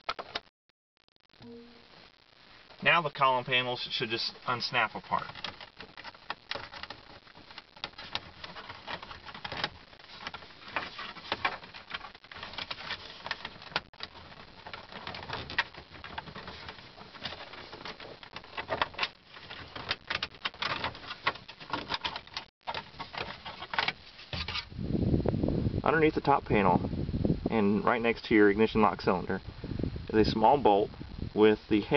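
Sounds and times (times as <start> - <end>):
plastic panels clicking and snapping: 5.4 - 24.5.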